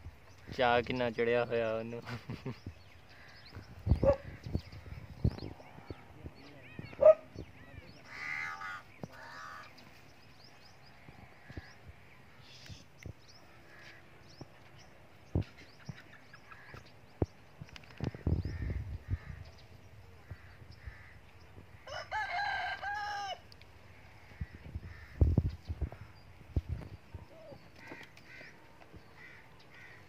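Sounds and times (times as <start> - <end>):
small birds chirping: 0.0 - 30.0
rooster crowing: 21.8 - 23.4.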